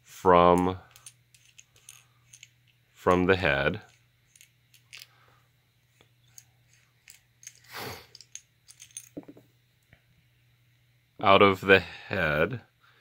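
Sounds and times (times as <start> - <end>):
small metal parts clicking and scraping: 0.5 - 5.3, 5.9 - 9.4.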